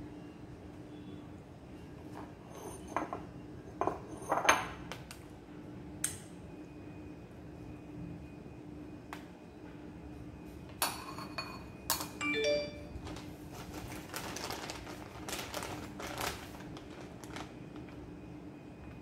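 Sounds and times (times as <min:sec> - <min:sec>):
metal spoon clinking on dishes: 0:10.8 - 0:12.6
plastic bag crinkling: 0:13.0 - 0:18.0.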